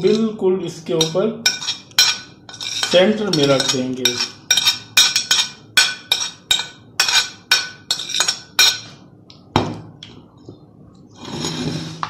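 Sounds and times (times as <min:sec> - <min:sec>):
metal spoon clinking on platter: 0:00.0 - 0:00.4, 0:01.0 - 0:09.0.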